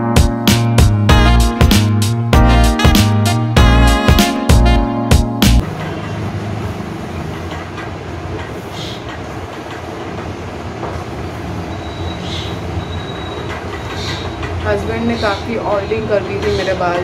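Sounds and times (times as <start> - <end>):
background music: 0.0 - 5.6.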